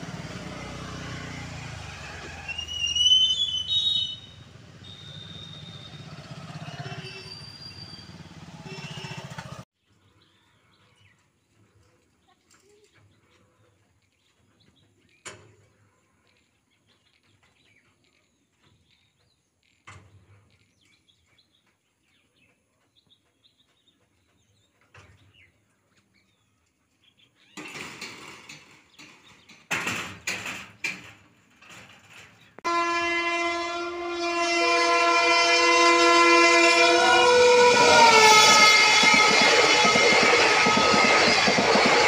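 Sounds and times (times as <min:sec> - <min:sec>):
locomotive air horn: 0:00.9 - 0:09.6, 0:32.6 - 0:42.0.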